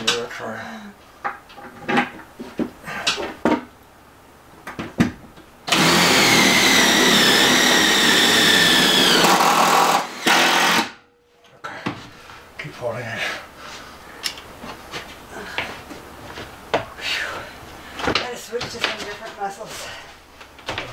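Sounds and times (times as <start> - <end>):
cordless drill whining: 5.7 - 10.9.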